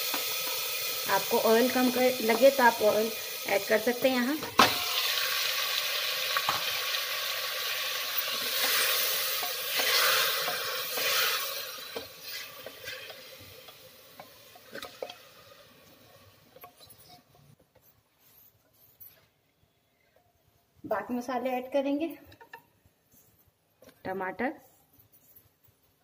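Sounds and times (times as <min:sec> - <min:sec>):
meat sizzling in hot oil: 0:00.0 - 0:16.4.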